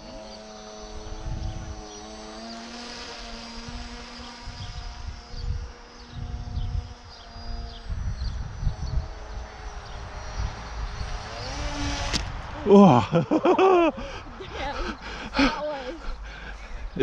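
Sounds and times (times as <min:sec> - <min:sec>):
model aeroplane motor buzzing: 0:00.0 - 0:12.7
wind rumbling on microphone: 0:00.9 - 0:02.0, 0:03.4 - 0:15.3.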